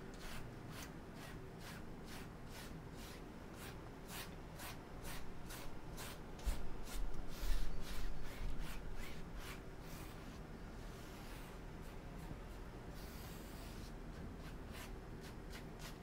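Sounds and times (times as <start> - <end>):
brush swishing on canvas: 0.2 - 16.0.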